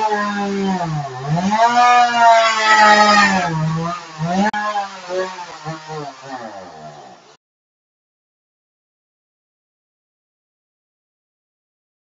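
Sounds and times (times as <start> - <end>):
chainsaw cutting metal: 0.0 - 7.4.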